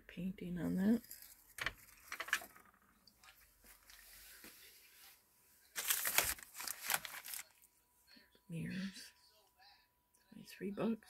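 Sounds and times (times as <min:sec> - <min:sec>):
plastic bags crinkling and rustling: 0:05.7 - 0:07.6.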